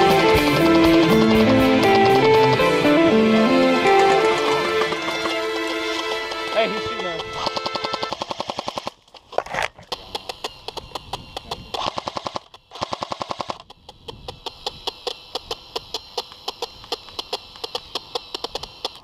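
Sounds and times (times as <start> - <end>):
airsoft guns firing automatic bursts: 3.9 - 9.0, 9.8 - 13.7.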